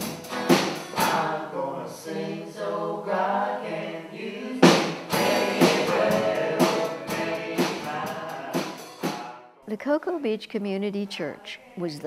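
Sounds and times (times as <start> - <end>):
sharp percussive beats: 0.0 - 1.4, 4.6 - 9.4
acoustic guitar: 0.0 - 10.1.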